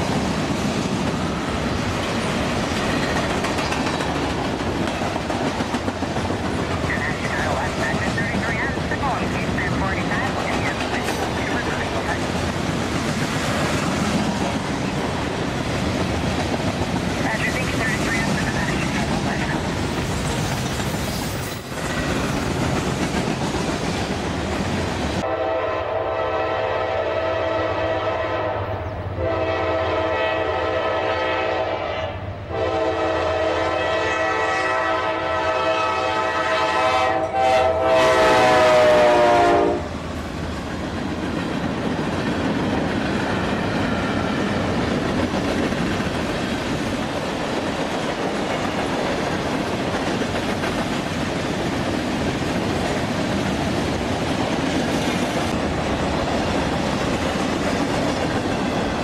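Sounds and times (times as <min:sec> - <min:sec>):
locomotive air horn blasts: 0:25.2 - 0:39.9.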